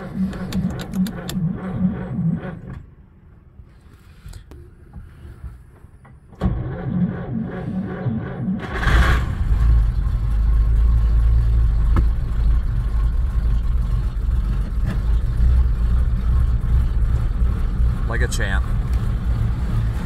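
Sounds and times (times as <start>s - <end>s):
car engine idling: 7.4s - 20.0s.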